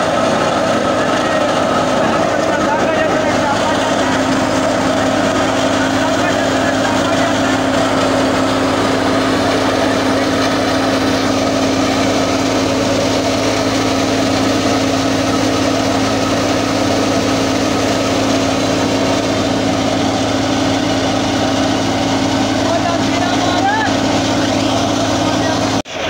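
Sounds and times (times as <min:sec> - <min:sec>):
thresher machine humming: 0:00.0 - 0:26.0.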